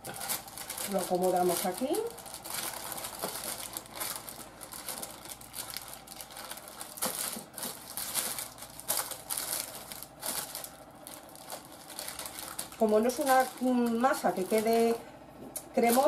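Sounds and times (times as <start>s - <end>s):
baking paper crinkling: 0.0s - 16.0s.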